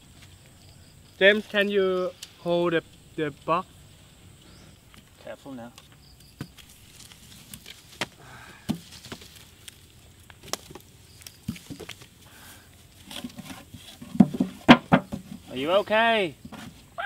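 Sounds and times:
wooden sticks knocking and scraping: 4.9 - 12.2, 12.9 - 16.9.

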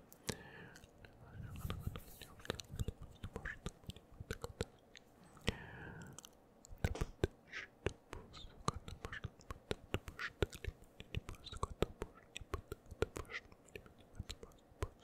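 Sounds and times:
tongue clicks: 0.1 - 15.0
breathy whispers: 0.2 - 4.6, 5.2 - 6.4
wet lip smacks: 0.2 - 15.0.

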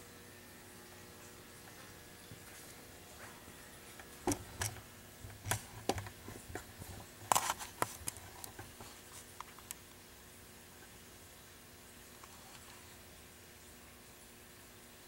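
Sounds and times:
camcorder handling clicks and taps: 4.3 - 4.8.

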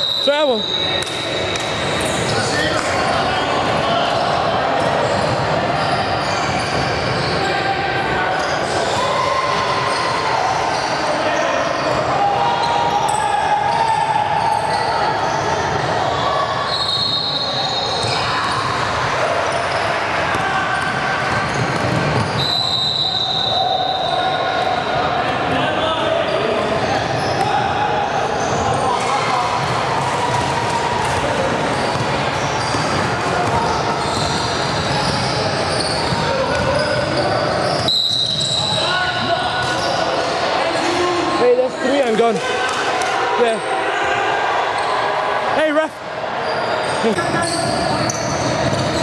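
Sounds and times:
sneaker squeaks: 0.0 - 3.2, 4.2 - 7.7, 8.3 - 18.9, 19.5 - 24.9, 26.2 - 42.2, 46.4 - 49.0
general din of gym: 0.0 - 49.0
shoes squeaking on gym floor: 31.7 - 39.0, 46.4 - 49.0.

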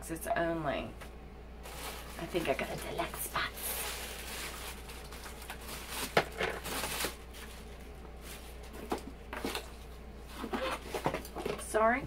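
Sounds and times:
tissue paper rustling: 1.6 - 8.8.

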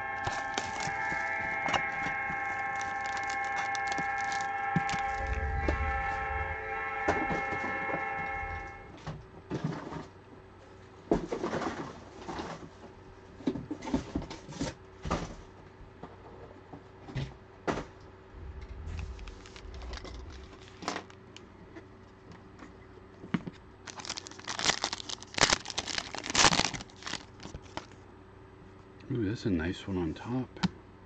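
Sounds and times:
foil wrapper crinkling and tearing: 2.8 - 4.5, 23.8 - 27.9.

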